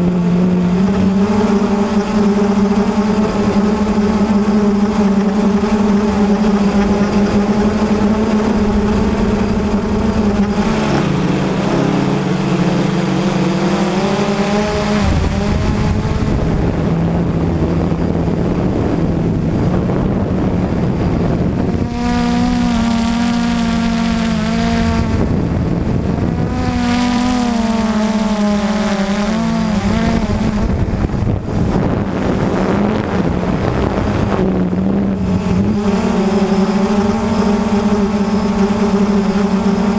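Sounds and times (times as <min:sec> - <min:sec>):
quadcopter motors humming: 0:00.0 - 0:39.9.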